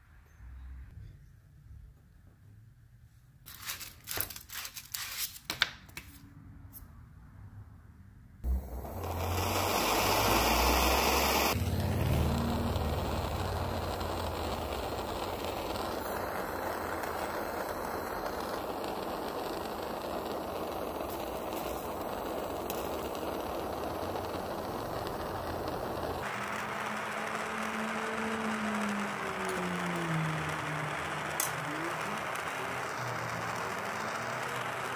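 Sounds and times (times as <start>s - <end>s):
sharp click of torch: 8.4s - 11.6s, 13.0s - 29.6s, 30.5s - 34.9s
gas torch hissing: 8.4s - 34.9s.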